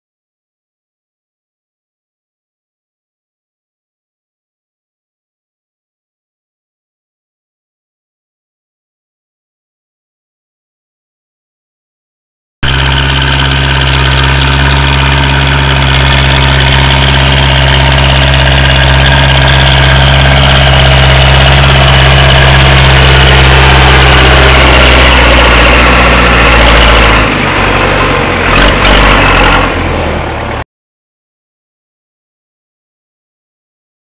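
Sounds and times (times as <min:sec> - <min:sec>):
tractor diesel engine running: 0:12.6 - 0:30.6.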